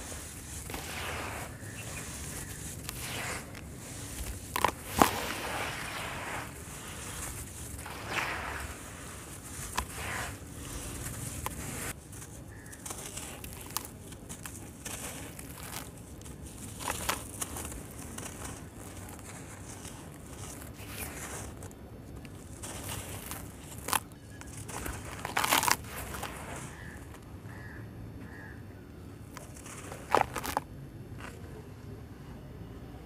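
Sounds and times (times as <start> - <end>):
damp sand crumbled by hand: 0.0 - 27.7, 29.2 - 31.4.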